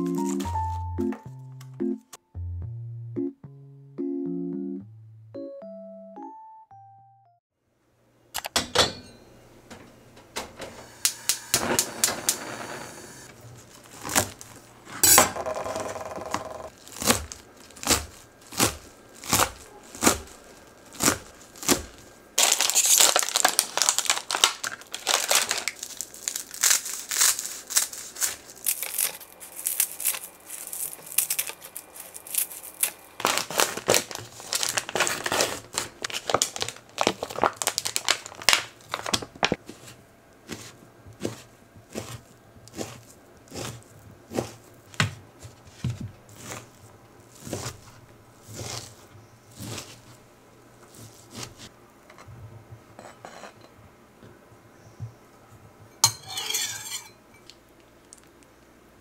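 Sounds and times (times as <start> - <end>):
crinkling and crackling: 0.0 - 0.9, 13.2 - 51.7
knife cutting on cutting board: 39.7 - 44.6, 48.5 - 49.0
scissors snipping seaweed sheets: 39.8 - 44.6.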